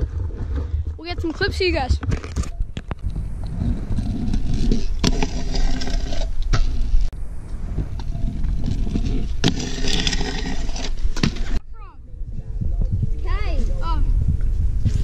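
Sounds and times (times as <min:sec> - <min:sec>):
scooter wheels rolling on concrete: 0:00.0 - 0:11.6.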